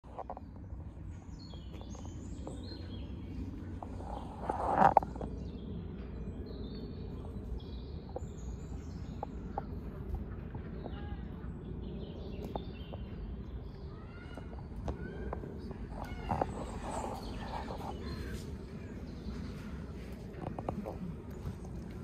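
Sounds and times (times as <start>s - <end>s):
low background rumble: 0.0s - 22.0s
small birds chirping: 0.0s - 22.0s.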